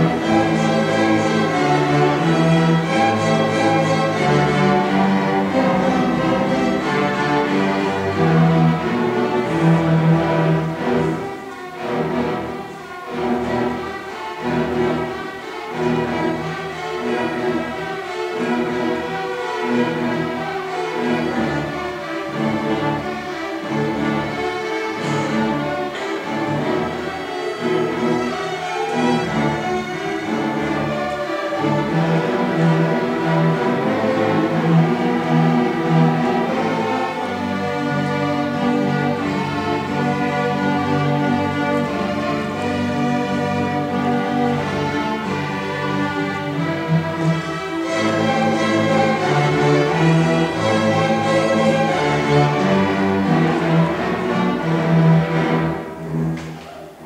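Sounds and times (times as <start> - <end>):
string orchestra playing: 0.0 - 57.0.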